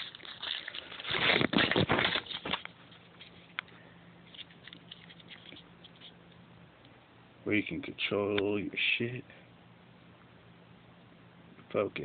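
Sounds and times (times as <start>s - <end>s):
plastic bag crinkling: 0.0s - 3.6s.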